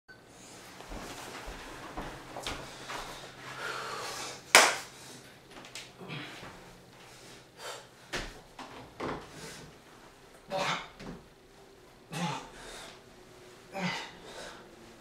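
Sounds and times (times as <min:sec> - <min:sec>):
footsteps across a room: 0:00.2 - 0:15.0.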